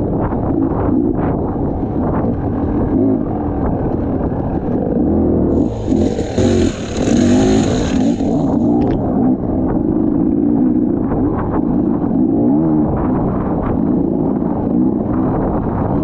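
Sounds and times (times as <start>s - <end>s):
dirt bike engine revving: 5.5s - 9.0s.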